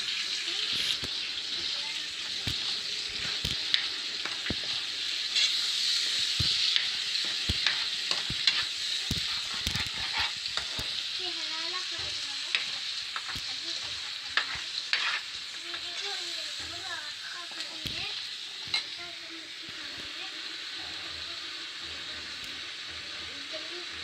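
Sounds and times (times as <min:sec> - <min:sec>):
food sizzling in oil: 0:00.0 - 0:24.0
spatula scraping and knocking pan: 0:00.8 - 0:11.0, 0:11.7 - 0:16.9.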